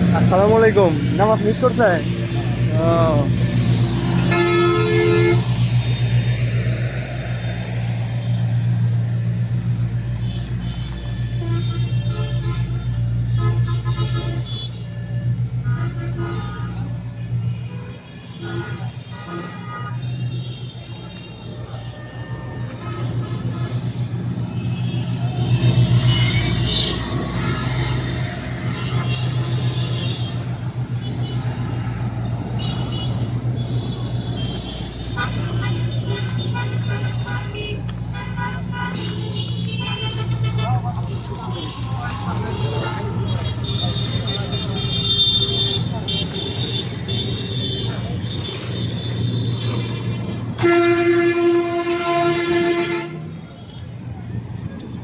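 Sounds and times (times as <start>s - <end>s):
traffic engine drone: 0.0s - 55.0s
vehicle horn honking: 4.2s - 6.1s, 10.2s - 23.9s, 32.6s - 49.8s, 50.5s - 53.8s.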